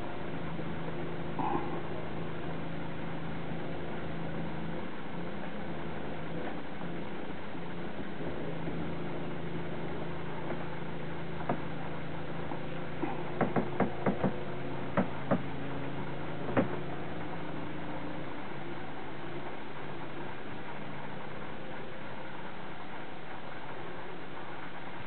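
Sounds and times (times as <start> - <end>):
low mechanical hum: 0.0 - 25.0
sharp knocks: 13.0 - 15.5, 16.5 - 16.8.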